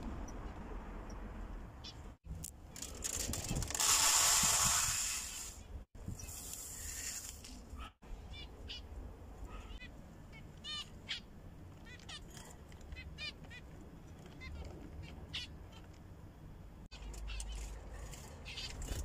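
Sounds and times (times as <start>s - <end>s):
birdseed poured into plastic tray: 2.8s - 5.6s.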